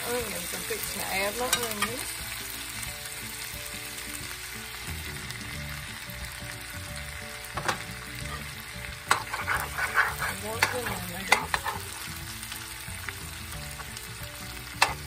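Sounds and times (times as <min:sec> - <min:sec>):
potatoes and onions sizzling: 0:00.0 - 0:15.0
metal spoon scraping skillet: 0:07.7 - 0:12.1, 0:14.8 - 0:15.0.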